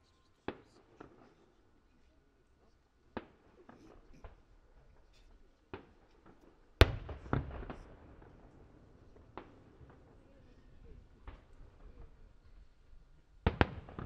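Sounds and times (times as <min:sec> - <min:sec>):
fireworks bangs: 0:05.7 - 0:12.7, 0:13.4 - 0:14.0.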